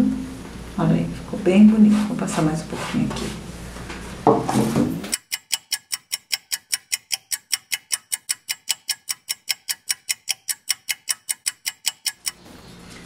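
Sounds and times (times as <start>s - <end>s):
clock ticking: 5.1s - 12.4s.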